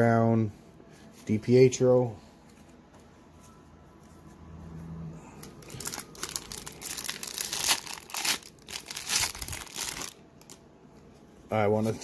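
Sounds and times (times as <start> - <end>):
foil wrapper crinkling and ripping: 5.4 - 10.6.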